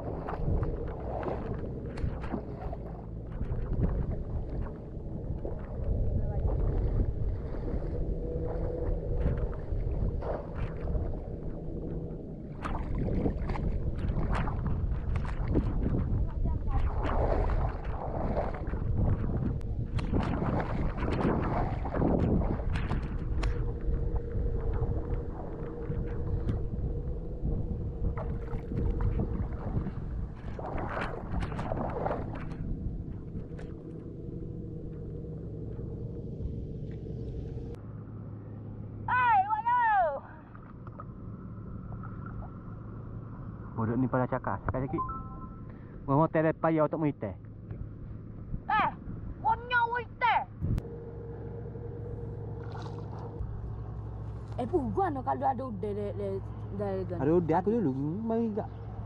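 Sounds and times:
splashing steps in water: 0.0 - 11.6, 12.5 - 23.9, 28.1 - 34.0, 52.5 - 53.4
wind on microphone: 0.0 - 33.8, 50.5 - 50.8
steady hum: 0.0 - 46.2.

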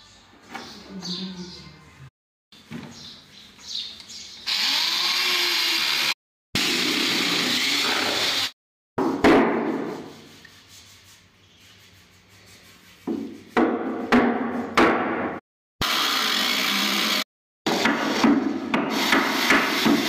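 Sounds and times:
cordless drill driving screw: 4.5 - 6.1.

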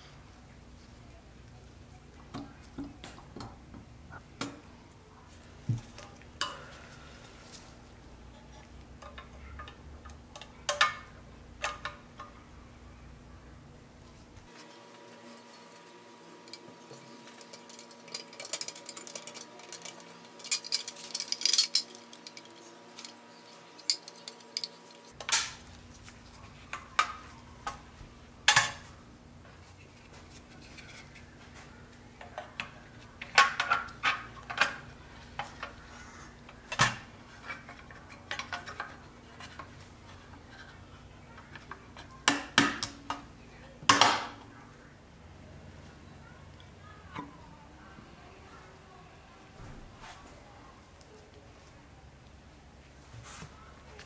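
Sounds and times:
metallic clinks of toy parts: 17.3 - 25.1.

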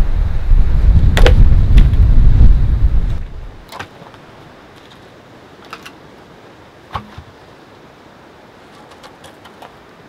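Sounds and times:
surf and wind hiss: 0.0 - 10.0
logs knocking together: 3.7 - 4.2, 5.6 - 6.0, 6.9 - 7.4.

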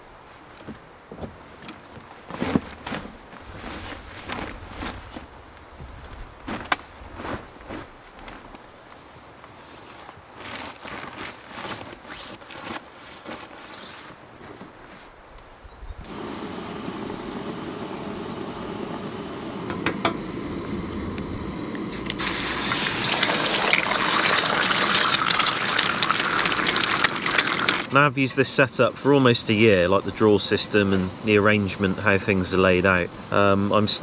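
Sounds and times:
tent fabric rustling: 1.5 - 15.2
stove burner hissing: 16.0 - 34.0
egg sizzling on griddle: 16.1 - 27.9.

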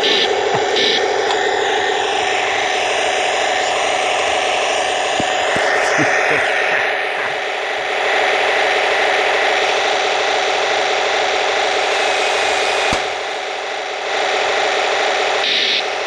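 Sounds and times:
model tank rattling drone: 0.0 - 11.9.

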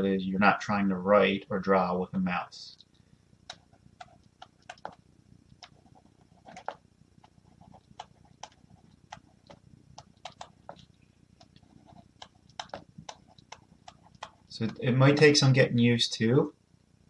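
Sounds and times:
pen tip tapping on tablet: 12.2 - 14.8.

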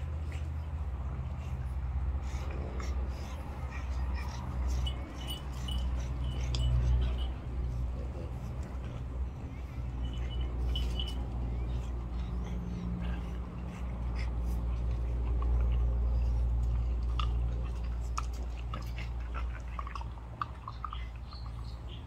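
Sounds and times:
dogs mouthing clicks: 3.9 - 9.2, 13.8 - 22.0.

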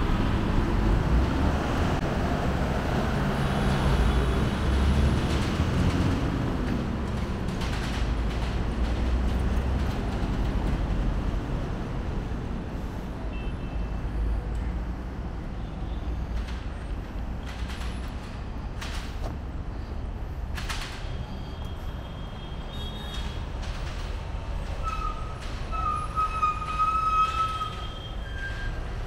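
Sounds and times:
vehicle engine rumble: 0.0 - 13.4.

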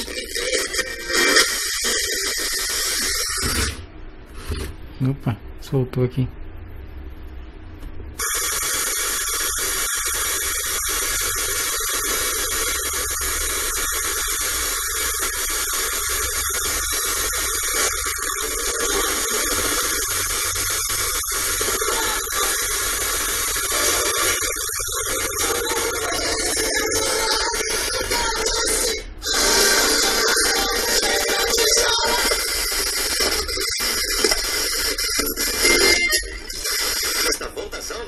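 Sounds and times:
radio static hiss: 0.0 - 4.7, 8.2 - 38.0.

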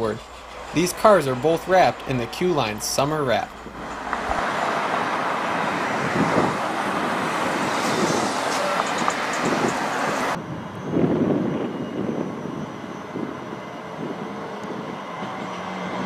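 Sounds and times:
cars driving past: 0.0 - 10.4
wind on microphone: 3.7 - 16.0.

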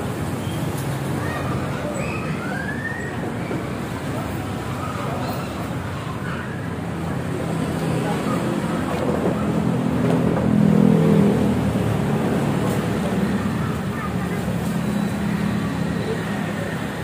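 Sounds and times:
vehicle engine passing: 7.4 - 16.6.

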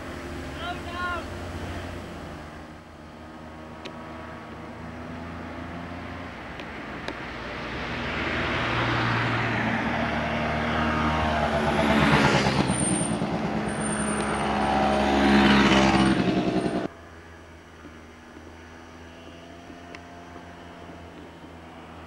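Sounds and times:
scooter engines passing by: 0.0 - 22.0.

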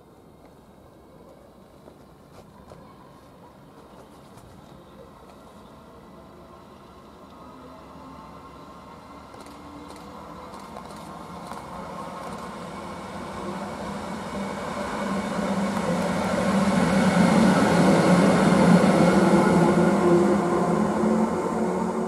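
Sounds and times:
locomotive whine: 5.4 - 22.0
train wheels rumbling on rails: 8.7 - 22.0.

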